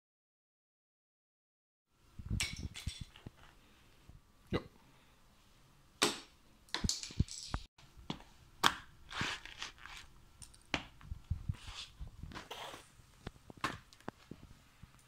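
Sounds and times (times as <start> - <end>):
toy figurines crunching under a shoe: 9.1 - 10.6.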